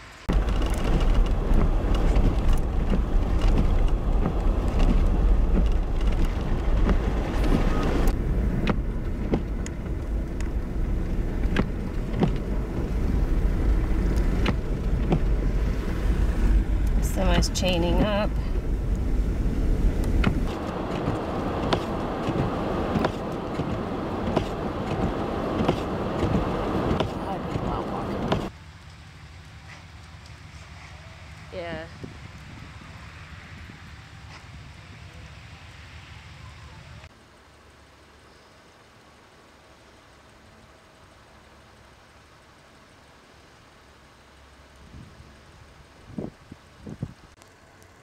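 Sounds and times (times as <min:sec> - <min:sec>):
car engine and road rumble: 0:00.0 - 0:48.0
vehicle running noise: 0:00.0 - 0:48.0.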